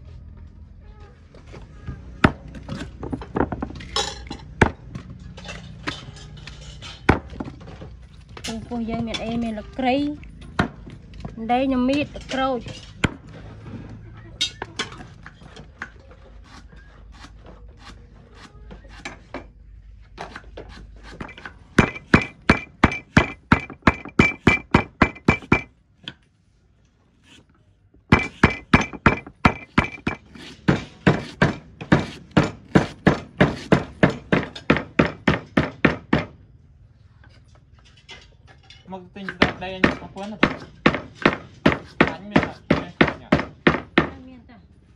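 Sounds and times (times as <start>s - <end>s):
cleaver chopping on wooden block: 28.1s - 36.3s, 39.4s - 44.2s.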